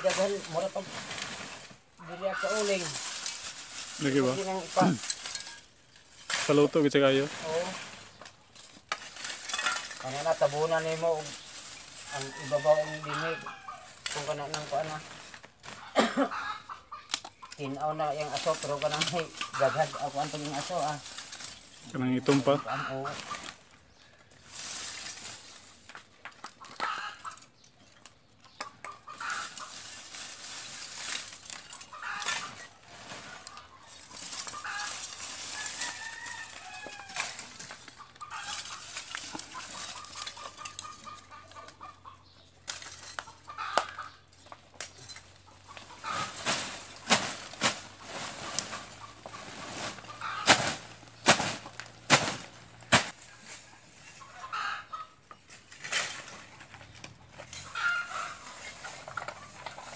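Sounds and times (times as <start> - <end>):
chickens clucking: 0.0 - 59.9
rooster crowing: 12.1 - 13.9, 35.5 - 37.4.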